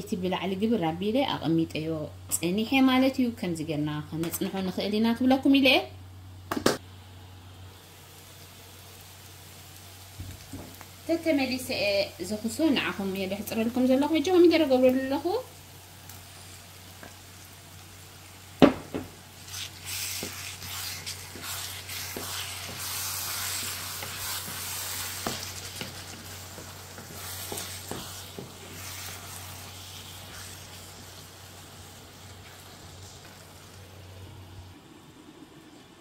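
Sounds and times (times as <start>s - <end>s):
low steady hum: 0.0s - 36.0s
food sizzling in pan: 6.7s - 34.4s.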